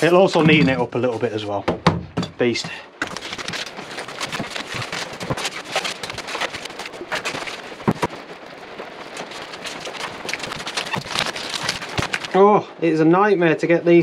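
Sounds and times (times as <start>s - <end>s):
foil tape crackling: 3.0s - 12.4s.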